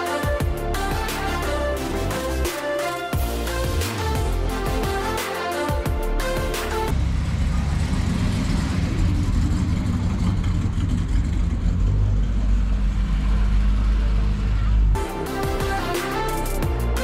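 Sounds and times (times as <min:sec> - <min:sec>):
classic car engines rumbling: 0:06.2 - 0:15.4.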